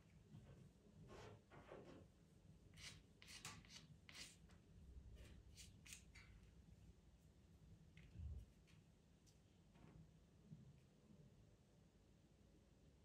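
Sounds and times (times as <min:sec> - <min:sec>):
pastel pencil scratching on paper: 0:02.8 - 0:04.4.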